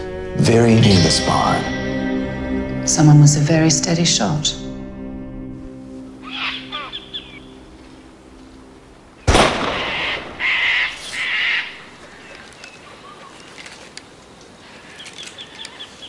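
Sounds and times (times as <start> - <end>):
birds calling: 5.9 - 16.0
harsh bird squawks: 6.2 - 7.6, 9.6 - 13.4
handgun shot: 9.3 - 10.3.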